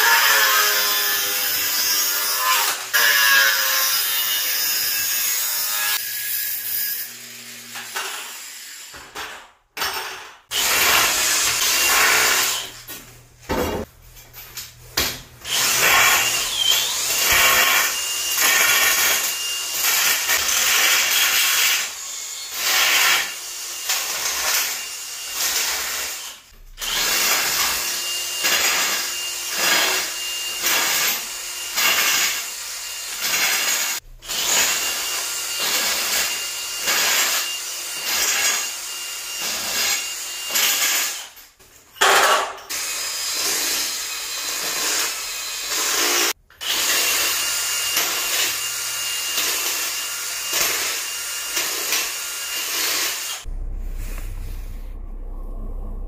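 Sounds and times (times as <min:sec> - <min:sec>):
cordless drill on metal tubes: 0:09.9 - 0:12.8, 0:15.4 - 0:53.5.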